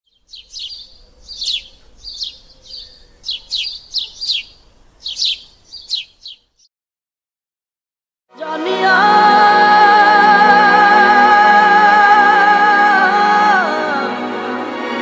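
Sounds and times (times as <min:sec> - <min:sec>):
small birds chirping: 0:00.0 - 0:06.7.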